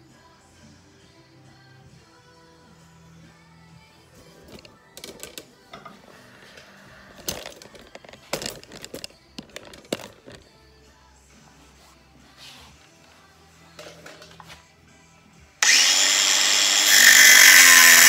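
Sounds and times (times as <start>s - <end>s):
faint background music: 0.0s - 18.0s
tools clicking and knocking: 4.5s - 6.0s, 7.2s - 10.4s, 13.8s - 14.5s.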